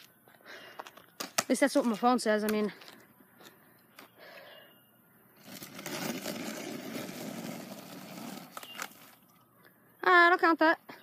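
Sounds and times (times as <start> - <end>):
skateboard wheels rolling on asphalt: 5.4 - 9.3.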